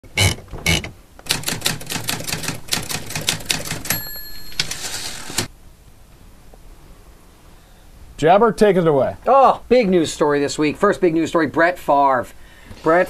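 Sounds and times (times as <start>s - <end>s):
typewriter carriage sliding: 0.7s - 5.5s
typewriter key clacks: 1.2s - 5.5s
typewriter bell ring: 1.3s - 5.5s.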